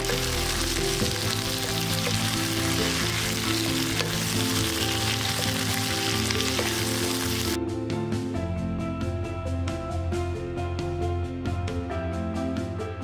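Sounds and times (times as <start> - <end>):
vegetables sizzling in oil: 0.0 - 7.6
wooden spatula stirring: 0.0 - 7.6
soft background music: 0.0 - 13.0.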